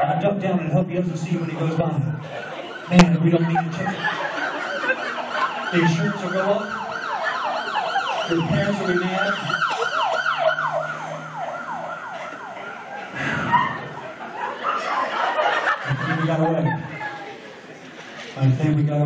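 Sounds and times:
police siren yelping: 1.5s - 15.7s.

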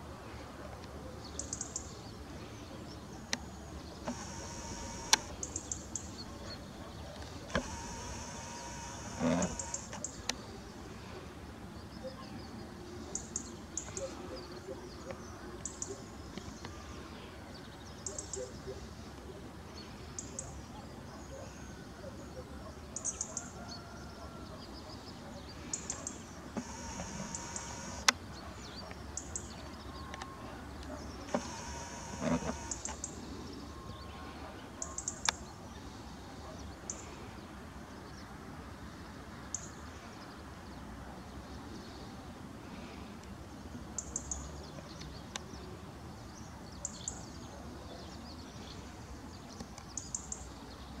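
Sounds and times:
outdoor background noise: 0.0s - 51.0s
small birds chirping: 1.2s - 10.7s, 24.9s - 34.1s
sharp clicks: 4.0s - 6.0s, 7.2s - 10.4s, 25.9s - 28.2s, 30.1s - 33.1s.

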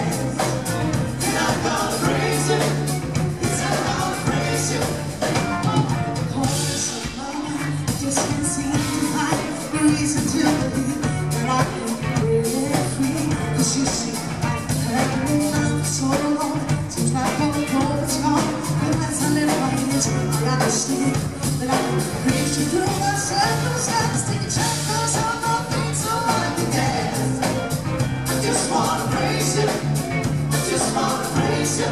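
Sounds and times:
live rock band playing: 0.0s - 31.9s
woman singing into microphone: 5.6s - 27.0s.

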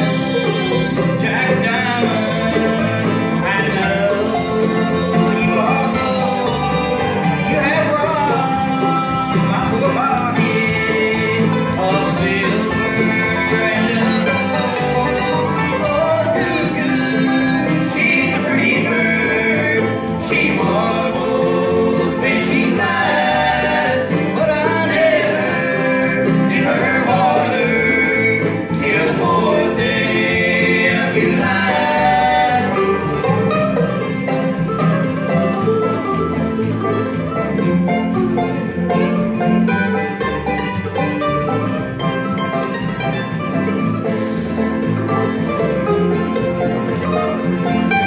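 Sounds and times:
person singing: 0.0s - 33.4s
acoustic guitars: 0.0s - 48.0s
banjo: 0.0s - 48.0s
bass: 0.0s - 48.0s
mandolin lead: 0.0s - 48.0s.

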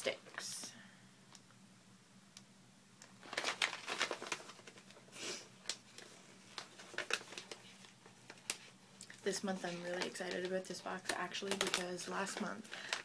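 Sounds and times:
plastic pouch crinkling: 3.0s - 13.0s.

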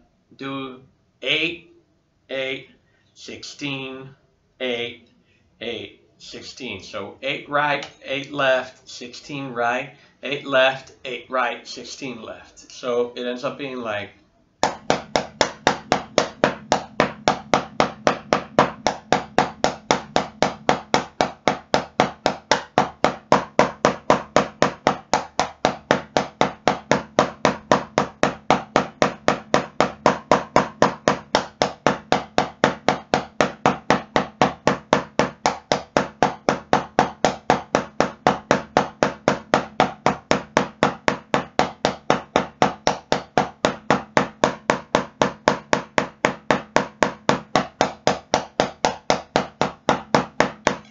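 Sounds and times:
drumsticks striking practice pad: 14.6s - 50.9s.

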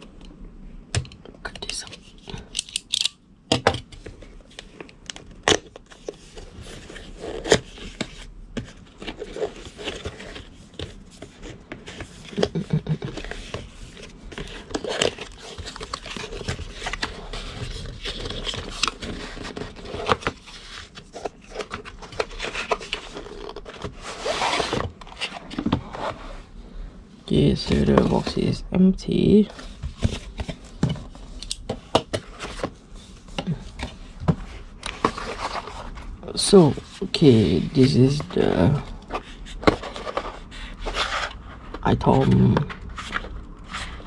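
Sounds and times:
paper packaging rustling and tearing: 5.5s - 26.2s, 34.8s - 44.0s.

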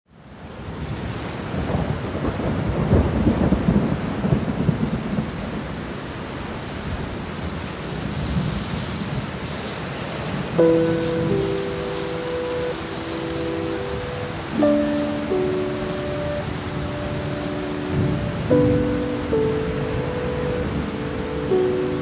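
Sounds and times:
steady rainfall: 0.1s - 22.0s
thunder rumbling: 1.5s - 6.0s, 10.4s - 22.0s.

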